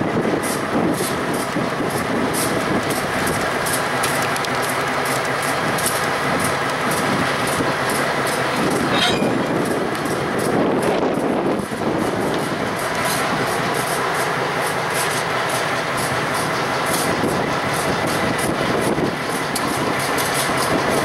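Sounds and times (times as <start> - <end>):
freight train wheels clicking: 0.0 - 21.0
train drone: 0.0 - 21.0
wheel squeal: 2.2 - 11.0.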